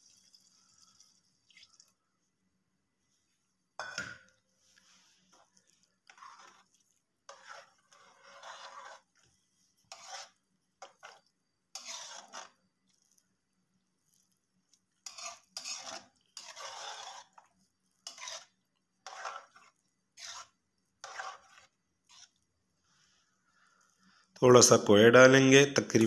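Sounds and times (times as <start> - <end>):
metal spoon scraping a pot: 3.8 - 13.2, 14.0 - 23.1.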